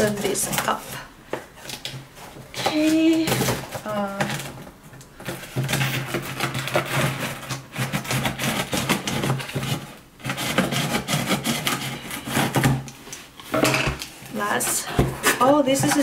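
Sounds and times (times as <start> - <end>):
scissors cutting tape and cardboard: 5.5 - 13.0.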